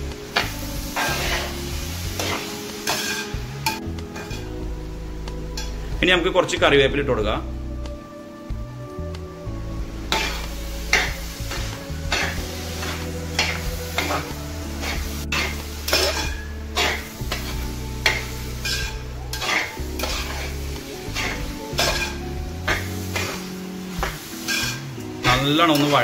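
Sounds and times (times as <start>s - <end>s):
soft sizzle of frying: 0.0s - 6.6s, 7.2s - 26.0s
metal spoon scraping a pot: 2.2s - 3.4s, 4.2s - 4.5s, 10.1s - 23.4s, 24.0s - 26.0s.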